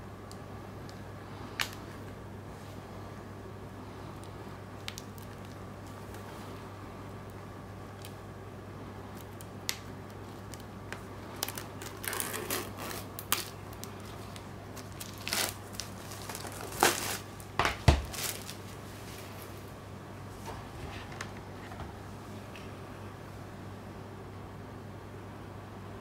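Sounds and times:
shrink wrap crinkling and tearing: 4.1 - 6.3, 9.1 - 19.4.

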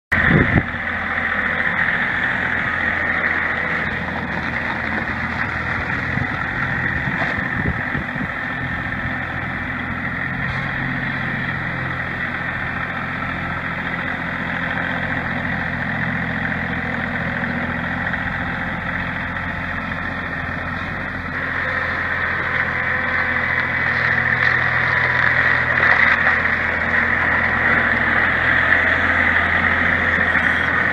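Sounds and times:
tractor engine running: 0.1 - 30.9.

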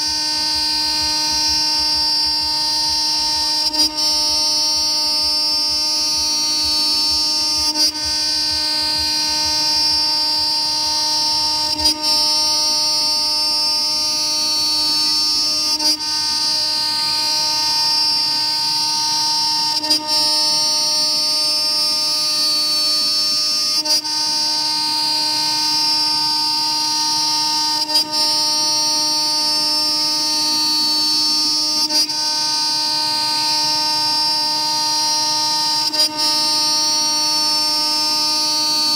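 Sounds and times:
router spindle milling aluminium: 0.0 - 23.3.

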